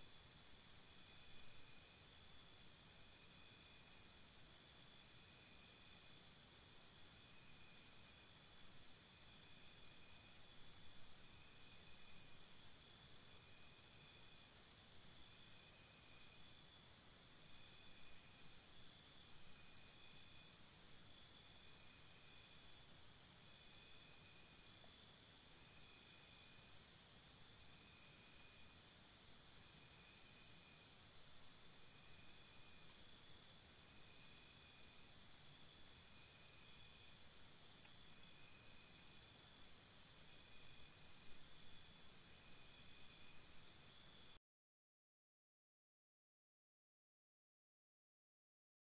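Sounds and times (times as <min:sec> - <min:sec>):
insect chirping trill: 0:00.2 - 0:44.4.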